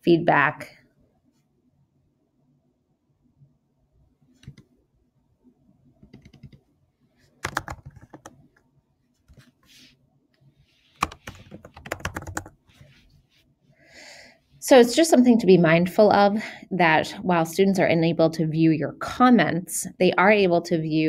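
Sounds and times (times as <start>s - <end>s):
keyboard typing: 4.4s - 4.7s, 6.0s - 6.7s, 7.4s - 8.4s, 11.0s - 12.6s.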